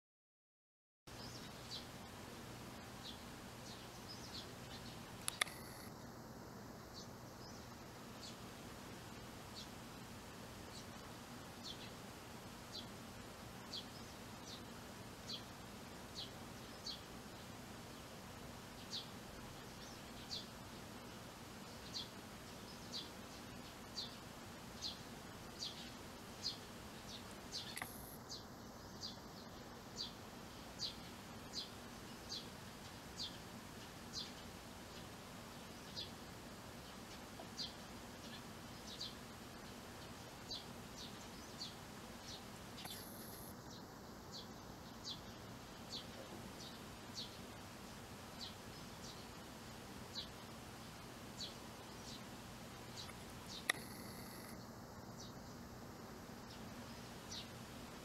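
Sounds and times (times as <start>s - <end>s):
faint steady hum: 1.1s - 58.0s
sharp click: 5.2s - 5.9s, 27.6s - 28.2s, 42.8s - 43.5s, 53.0s - 54.6s
sparrow chirping: 21.7s - 24.2s, 24.8s - 30.2s, 30.8s - 35.0s, 36.8s - 39.7s, 40.4s - 47.5s, 52.9s - 55.6s, 56.5s - 57.5s.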